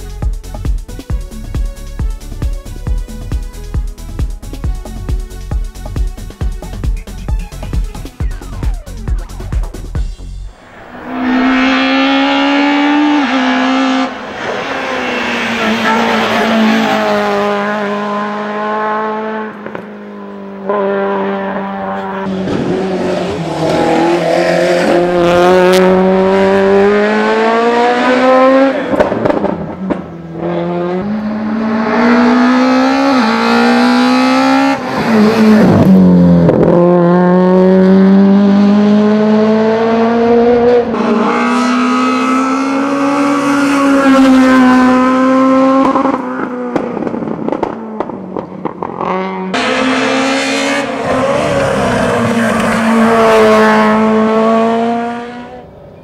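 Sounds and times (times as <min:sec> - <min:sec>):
car engine revving hard: 0:10.7 - 0:19.8, 0:20.6 - 0:55.6.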